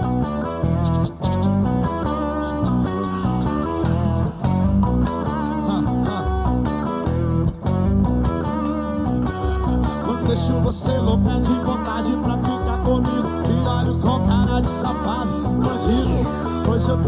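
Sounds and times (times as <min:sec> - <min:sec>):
bass: 0:00.0 - 0:17.0
guitar playing: 0:00.0 - 0:17.0.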